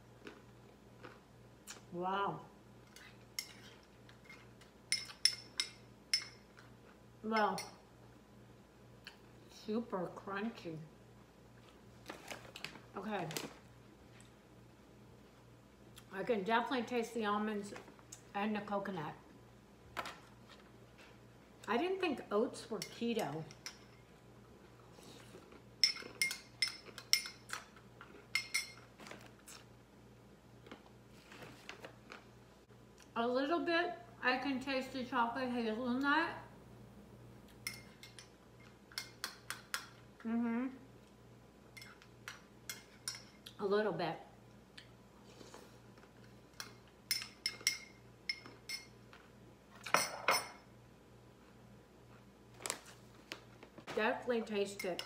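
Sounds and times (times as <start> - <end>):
metal spoon clinking ceramic bowl: 4.9 - 6.4, 25.8 - 27.4, 28.3 - 28.8, 37.6 - 38.3, 46.6 - 49.0, 49.9 - 50.6.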